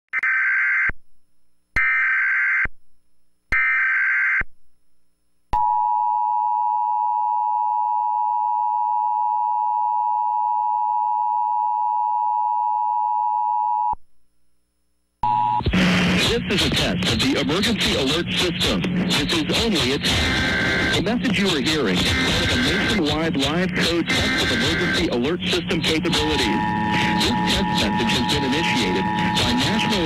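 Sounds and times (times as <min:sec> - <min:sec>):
warbling digital header bursts: 0:17.2 - 0:30.0
two-tone attention signal: 0:26.1 - 0:30.0.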